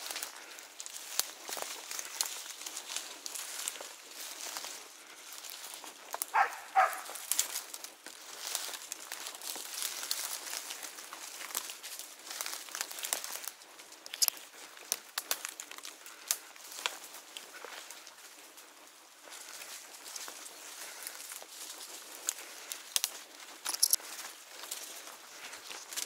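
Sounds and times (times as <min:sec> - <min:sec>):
brush rustling and snapping: 0:00.0 - 0:18.7, 0:19.3 - 0:26.0
footsteps crunching through dry leaves: 0:00.0 - 0:26.0.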